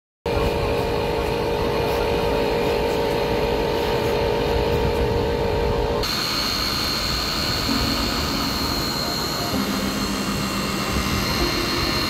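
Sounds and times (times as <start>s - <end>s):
electric motor whine: 0.3s - 12.0s
rushing noise: 5.8s - 12.0s.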